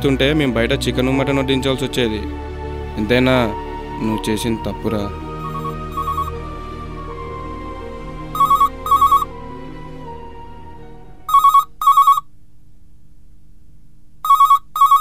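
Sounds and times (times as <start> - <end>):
soft background music: 0.0 - 12.2
telephone electronic double ring: 5.4 - 6.3, 8.4 - 9.3, 11.3 - 12.3, 14.2 - 15.0.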